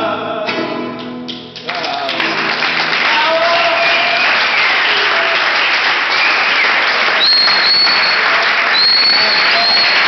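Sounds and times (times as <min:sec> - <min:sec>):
audience clapping: 0:01.0 - 0:10.0
high whistles: 0:06.1 - 0:10.0.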